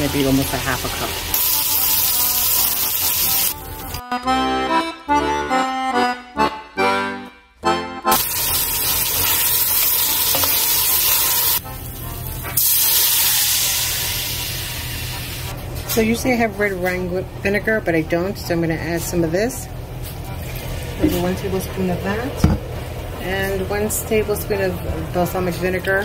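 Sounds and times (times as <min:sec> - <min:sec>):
beef sizzling in a pot: 0:00.0 - 0:04.0, 0:08.1 - 0:15.5
music: 0:00.0 - 0:15.4
wine poured into hot pot hissing: 0:01.3 - 0:03.6, 0:12.6 - 0:15.1.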